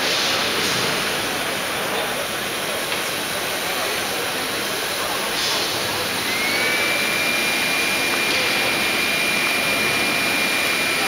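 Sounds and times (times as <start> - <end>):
milling machines running with whine: 0.0 - 11.0.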